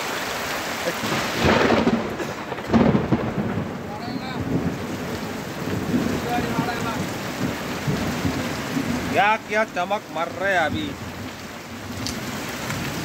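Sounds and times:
heavy rain: 0.0 - 13.0
thunder claps: 1.0 - 11.1.

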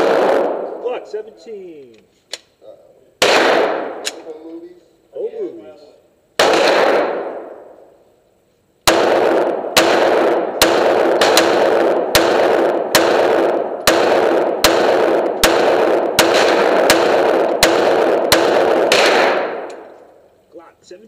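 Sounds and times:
pistol shots with reverberant ring: 0.0 - 0.8, 3.2 - 4.2, 6.4 - 8.0, 8.8 - 20.2.

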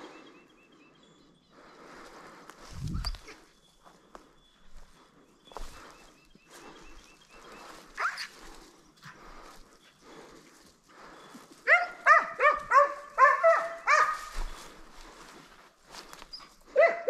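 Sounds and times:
footsteps rustling: 2.0 - 16.8
dog yelp: 8.0 - 8.3, 11.7 - 14.3, 16.4 - 17.0
hunting dog barking: 8.0 - 8.3, 11.6 - 14.6, 16.6 - 17.0.

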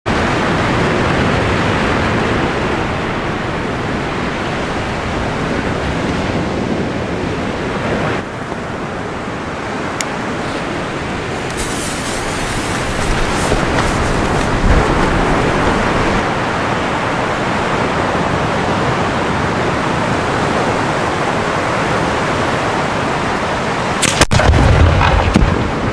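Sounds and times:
wind noise on microphone: 0.1 - 25.9
firework fuse crackling and hissing: 11.3 - 15.2.

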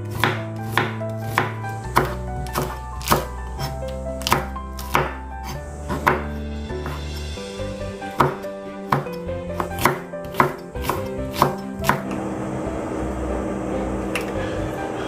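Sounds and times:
knife chopping on wooden board: 0.0 - 7.2, 8.1 - 12.1
background music: 0.0 - 15.0.

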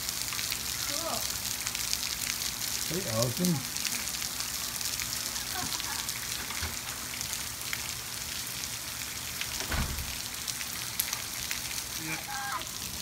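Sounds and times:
rain falling: 0.0 - 13.0
dull low thump: 9.6 - 10.2.

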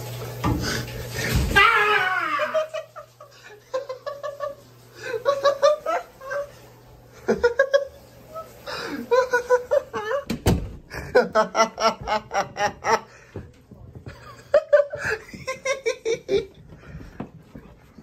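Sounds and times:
person giggling: 7.2 - 8.0, 8.7 - 10.3, 10.9 - 13.3, 14.0 - 16.7.

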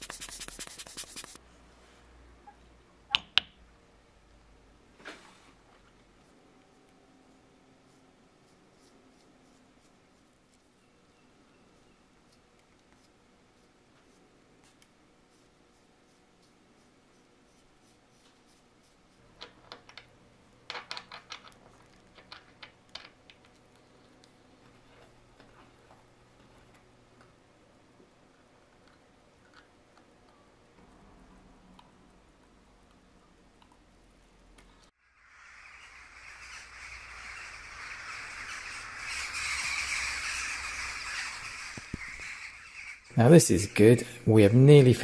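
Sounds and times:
jackdaws calling: 35.2 - 44.2.

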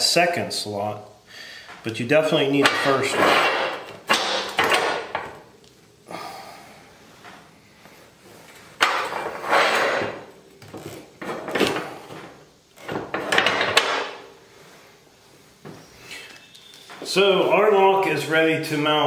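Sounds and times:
metal scraping and clanking: 2.6 - 5.1, 8.8 - 10.3.

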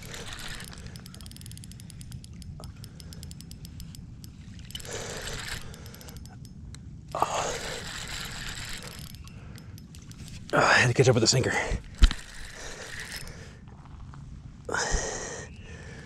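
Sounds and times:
fishing reel clicking: 0.0 - 13.5.

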